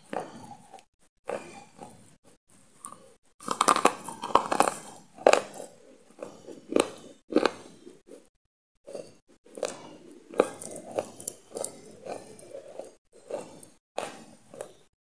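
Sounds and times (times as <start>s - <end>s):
crunchy biting and chewing: 2.8s - 8.3s, 9.5s - 14.9s.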